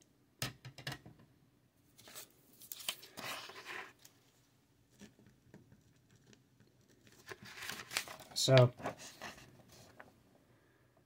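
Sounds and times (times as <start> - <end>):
paper rustling and crinkling: 2.0 - 4.2, 6.9 - 10.2.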